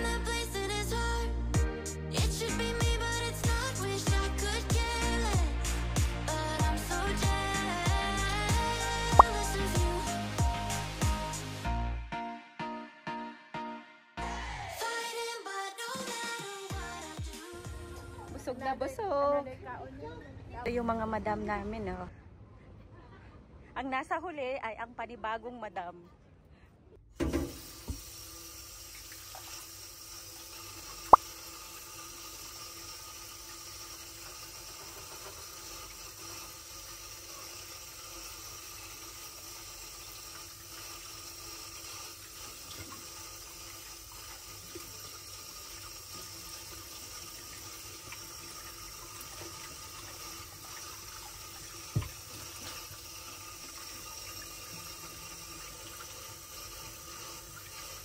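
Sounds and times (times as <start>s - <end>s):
tap water running into sink: 27.2s - 58.0s.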